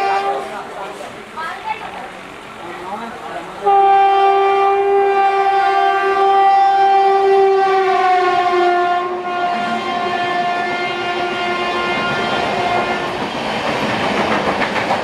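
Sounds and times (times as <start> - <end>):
locomotive horn blast: 0.0 - 0.7, 3.6 - 13.2.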